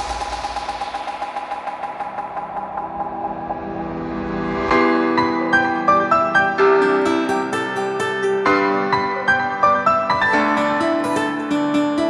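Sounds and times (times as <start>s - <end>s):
background music: 0.0s - 12.0s
piano-like keyboard notes: 4.7s - 12.0s.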